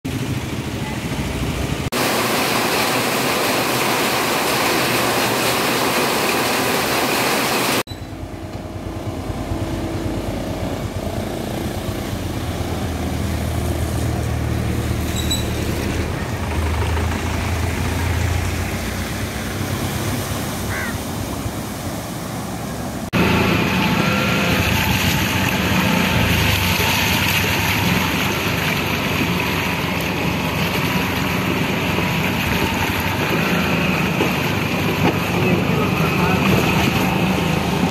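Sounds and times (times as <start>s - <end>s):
vehicle engines running: 0.0s - 37.9s
heavy rain pouring: 0.1s - 7.9s, 9.0s - 37.9s
steady rushing water: 0.1s - 7.9s, 17.2s - 37.9s.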